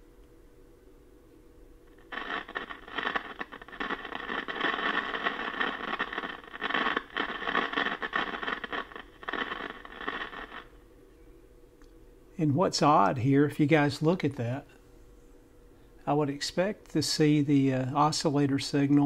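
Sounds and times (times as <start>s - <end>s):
radio loudspeaker crackling: 2.0s - 10.7s.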